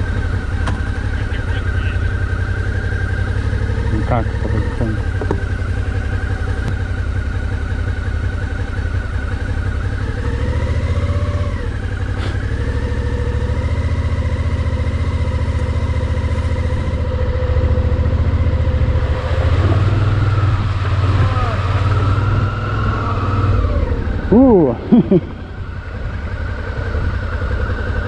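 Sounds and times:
motorcycle engine running: 0.0s - 28.0s.

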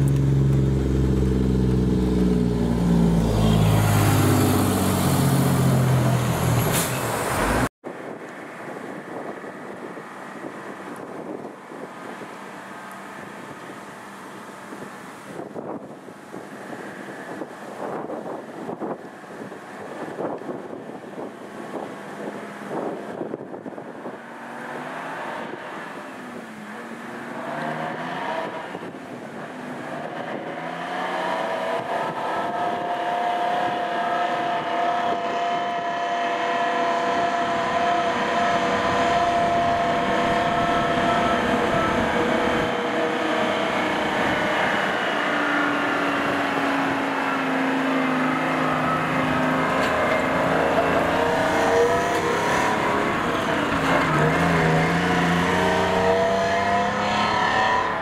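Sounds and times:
truck engine revving through gears: 0.0s - 7.7s, 21.3s - 58.0s.

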